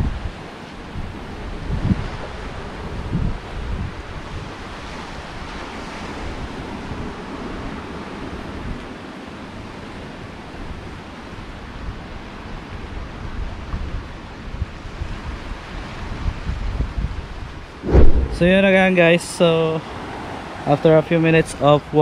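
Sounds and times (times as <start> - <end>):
wind buffeting microphone: 17.8 - 18.9.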